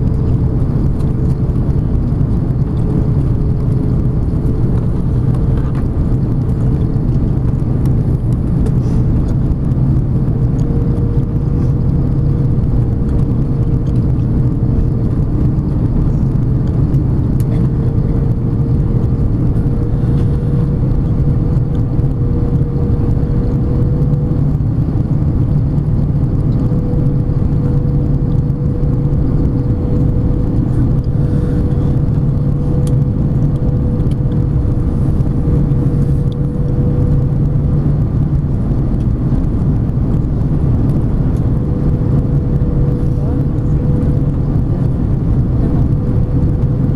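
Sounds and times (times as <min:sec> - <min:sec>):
airflow rushing: 0:00.0 - 0:46.9
jet engines droning: 0:00.0 - 0:46.9
low hum: 0:00.0 - 0:46.9
steady whine: 0:00.0 - 0:46.9.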